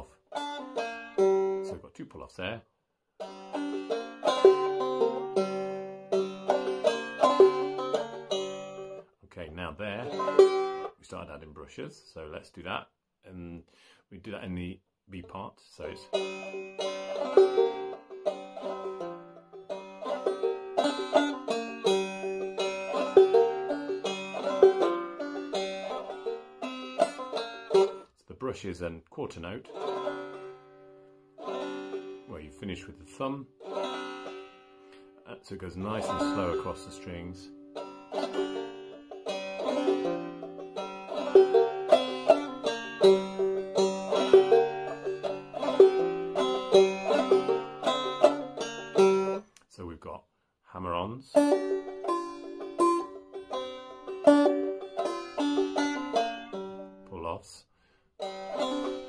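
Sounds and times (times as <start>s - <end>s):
banjo picking and strumming: 0.0s - 49.6s, 50.8s - 59.0s.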